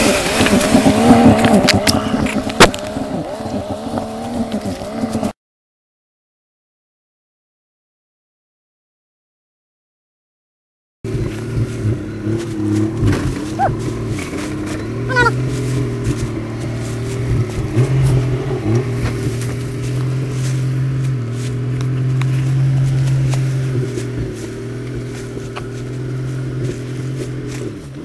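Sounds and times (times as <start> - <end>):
car engine at low revs: 0.0 - 5.3, 11.1 - 28.0.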